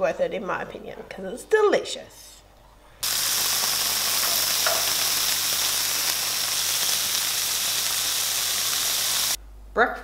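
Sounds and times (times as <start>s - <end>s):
food sizzling in frying pan: 3.0s - 9.4s.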